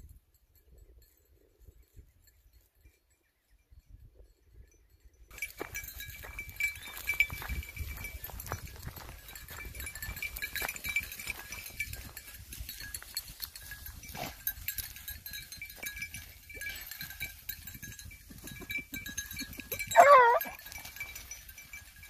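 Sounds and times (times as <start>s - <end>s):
dog collar bell jingling: 0.0s - 22.0s
dry grass rustling: 5.3s - 18.6s.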